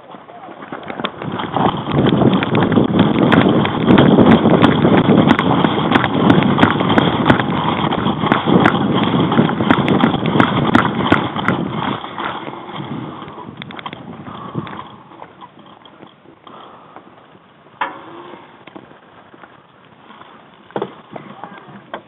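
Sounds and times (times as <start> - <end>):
running footsteps on gravel: 0.0 - 17.2.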